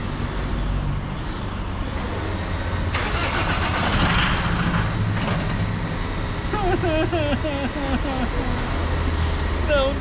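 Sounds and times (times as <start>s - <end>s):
diesel engine cranking: 2.8s - 5.8s.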